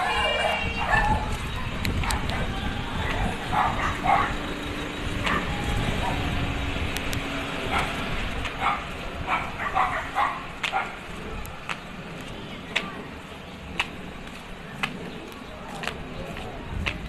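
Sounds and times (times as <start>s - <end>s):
dog barking: 0.8s - 1.3s, 2.0s - 2.6s, 3.2s - 4.4s, 7.7s - 8.0s, 8.6s - 11.0s.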